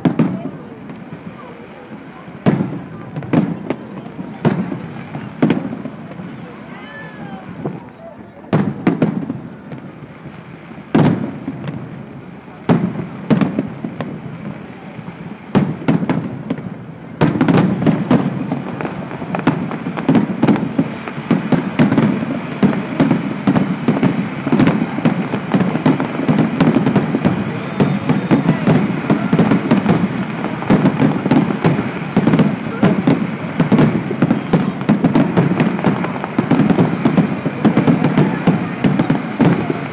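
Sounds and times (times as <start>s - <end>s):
firework crackles: 0.0s - 39.9s
firework shells bursting: 15.6s - 39.9s.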